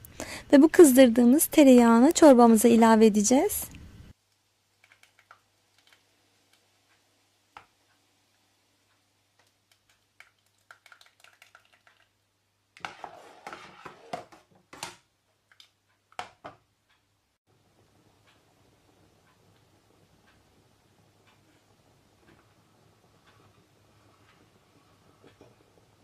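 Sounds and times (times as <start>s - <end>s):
clattering and stirring: 12.8s - 16.6s.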